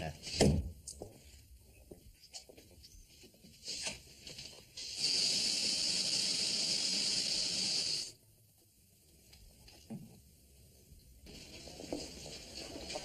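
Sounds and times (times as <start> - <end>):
water spray hissing: 4.8 - 8.2.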